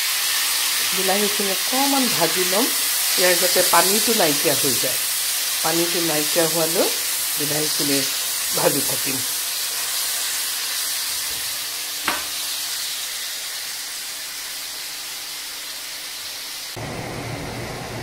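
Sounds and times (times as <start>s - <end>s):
tomatoes sizzling in hot oil: 0.0s - 17.3s
sharp tap: 12.0s - 12.3s.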